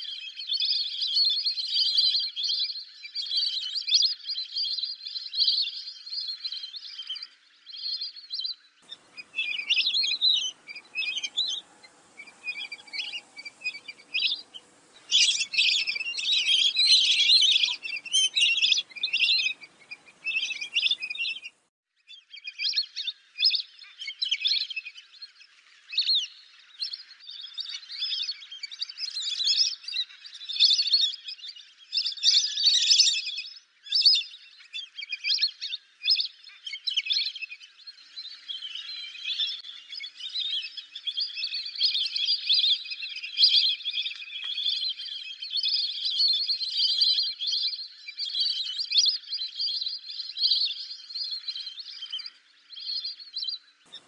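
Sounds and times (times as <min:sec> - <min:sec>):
ducks whistling chirps: 0:08.8 - 0:21.6, 0:38.3 - 0:54.0.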